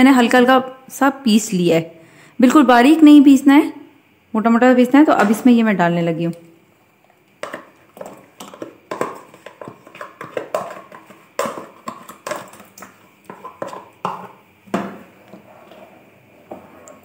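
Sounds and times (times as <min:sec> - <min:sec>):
ladle stirring in metal pot: 0:07.4 - 0:17.0.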